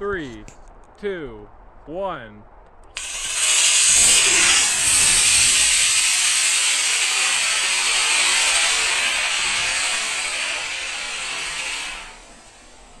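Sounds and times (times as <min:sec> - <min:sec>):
rocket motor rushing hiss: 0:03.0 - 0:13.0.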